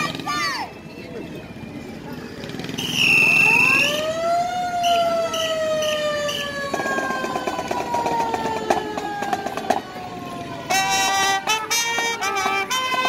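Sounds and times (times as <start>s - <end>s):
siren winding up and down: 2.6s - 10.4s
short high siren toots: 2.8s - 8.0s.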